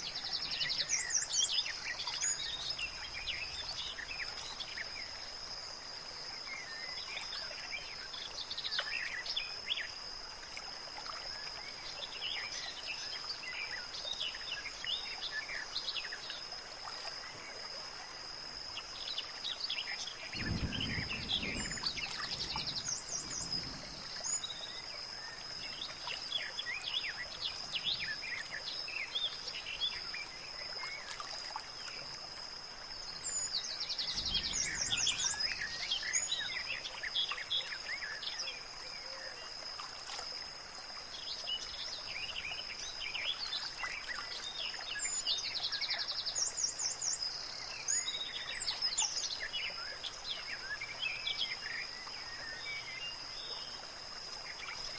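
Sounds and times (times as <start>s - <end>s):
steady high insect drone: 0.0s - 54.9s
birds chirping and singing: 33.3s - 38.4s.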